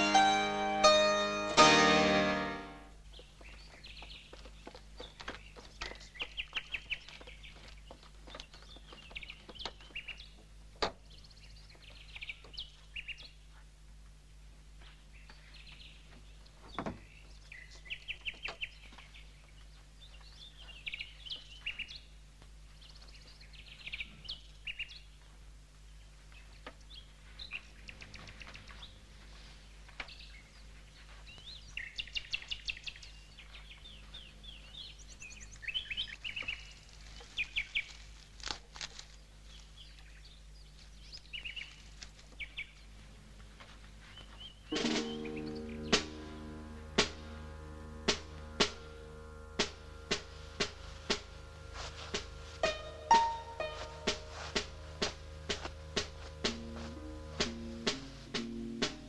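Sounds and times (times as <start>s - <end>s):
steady low hum: 0.0s - 59.0s
small birds chirping: 2.5s - 14.0s, 14.7s - 46.5s.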